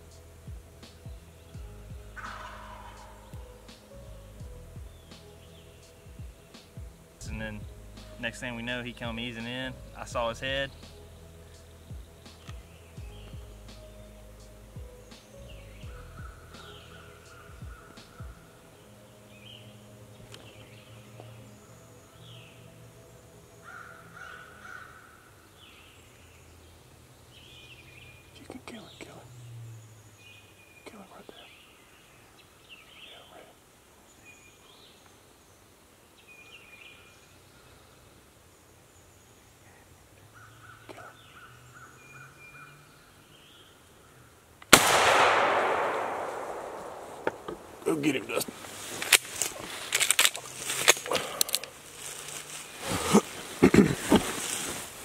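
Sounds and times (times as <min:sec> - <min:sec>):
bird calls: 0:00.9 - 0:04.0, 0:04.8 - 0:22.6, 0:23.6 - 0:44.4
bird trill: 0:01.0 - 0:06.8, 0:07.6 - 0:18.6
faint bird calls: 0:02.1 - 0:03.9, 0:15.1 - 0:18.8, 0:23.6 - 0:26.6
shotgun shot with echo: 0:02.2 - 0:03.1, 0:44.7 - 0:47.9.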